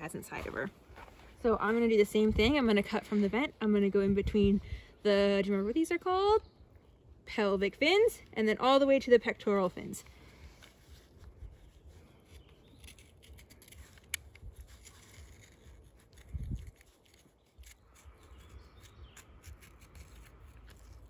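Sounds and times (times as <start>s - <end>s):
knife scratching cuts in fish skin: 11.0s - 21.0s.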